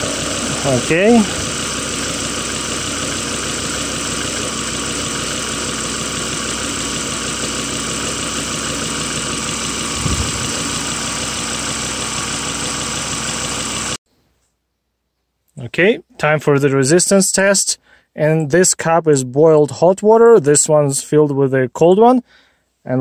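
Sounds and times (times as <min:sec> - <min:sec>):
car engine idling: 0:00.0 - 0:14.0
low thump: 0:09.9 - 0:10.7.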